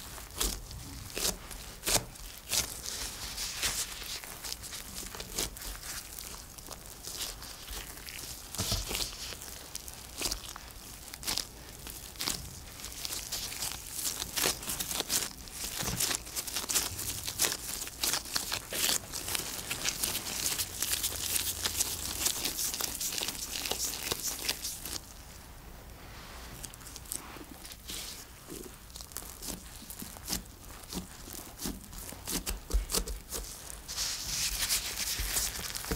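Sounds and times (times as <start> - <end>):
disposable gloves crinkling: 0.0 - 35.9
dough squishing: 0.0 - 35.9.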